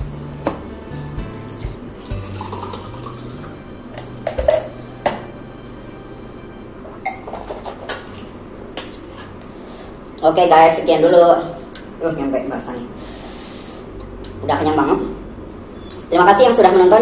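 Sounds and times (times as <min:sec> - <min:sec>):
quiet background music: 0:00.0 - 0:13.0, 0:13.9 - 0:17.0
water pouring into glass mug: 0:02.2 - 0:03.3.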